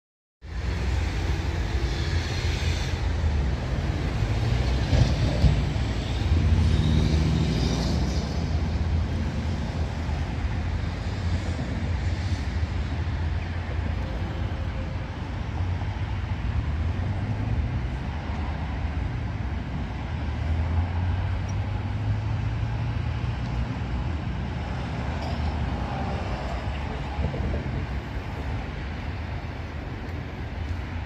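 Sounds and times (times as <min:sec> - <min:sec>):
cars driving through: 0:00.4 - 0:31.0.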